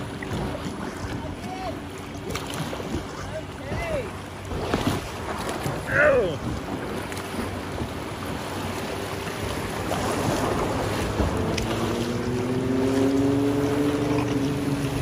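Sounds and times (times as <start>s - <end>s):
river water rushing and splashing: 0.0s - 15.0s
wind buffeting microphone: 0.0s - 15.0s.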